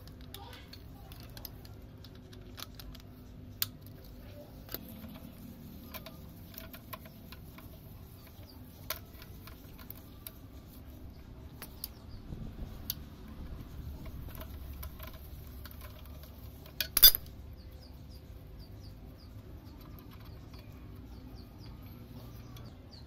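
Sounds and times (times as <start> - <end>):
metallic clicks of socket wrench: 16.8 - 17.3.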